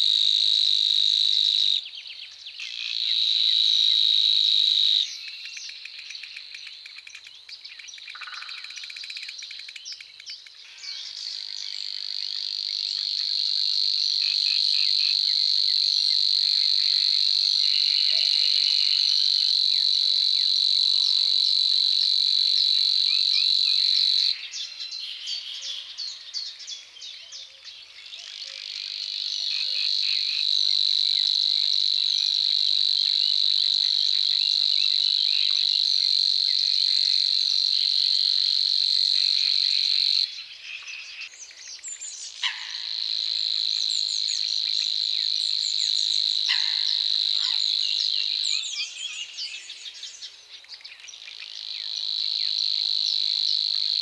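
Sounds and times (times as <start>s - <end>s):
small birds chirping: 5.1s - 13.3s.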